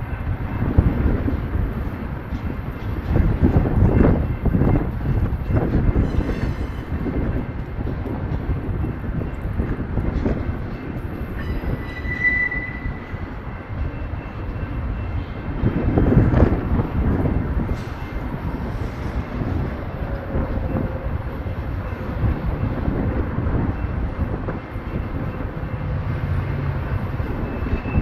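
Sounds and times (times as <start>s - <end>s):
train wheels rumbling on rail: 0.0s - 28.0s
wheels clacking on rail: 0.0s - 28.0s
short high squeal: 11.8s - 13.0s.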